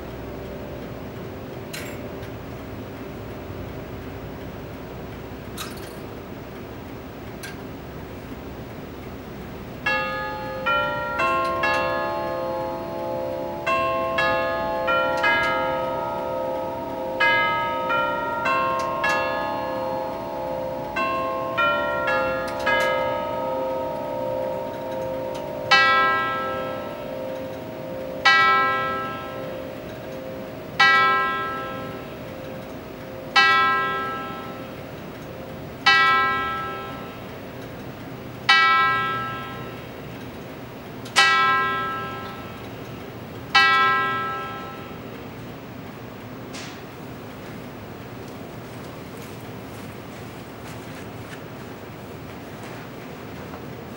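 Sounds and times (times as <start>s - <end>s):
bell-like hour strokes: 0.0s - 7.6s, 8.9s - 45.5s
tubular chime tune: 9.9s - 37.3s.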